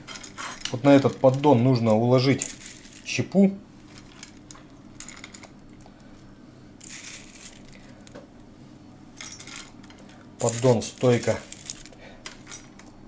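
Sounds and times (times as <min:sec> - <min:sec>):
wood chips rustling: 0:01.0 - 0:03.2, 0:06.8 - 0:07.9, 0:10.4 - 0:11.9
wood chips clicking in strainer: 0:10.4 - 0:11.9.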